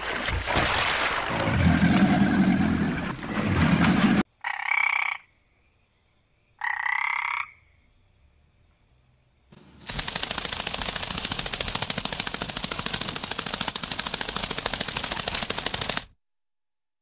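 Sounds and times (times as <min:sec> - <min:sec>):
frog croaking: 0:04.3 - 0:05.4, 0:06.6 - 0:07.8.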